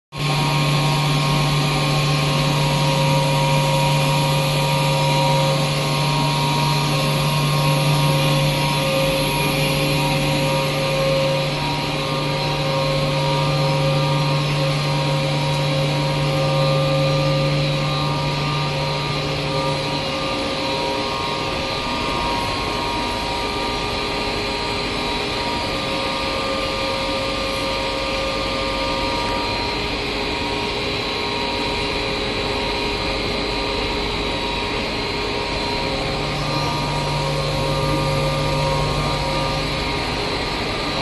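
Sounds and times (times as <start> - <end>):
loud machine hum with hiss: 0.1 - 41.0.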